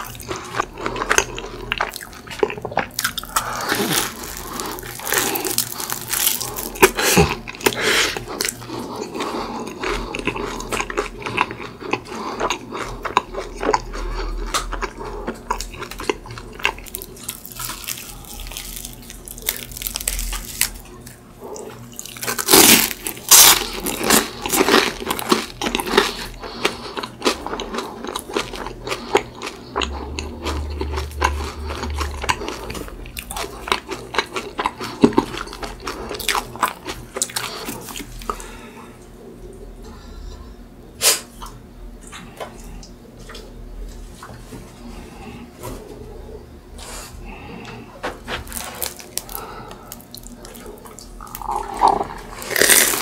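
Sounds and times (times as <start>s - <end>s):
crunchy eating and chewing: 0.0s - 53.0s.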